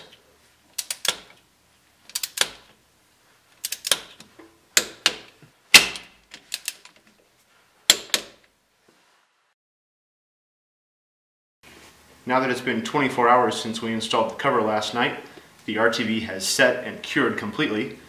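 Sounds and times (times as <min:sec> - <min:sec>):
torque wrench ratcheting clicks: 0:02.1 - 0:02.6.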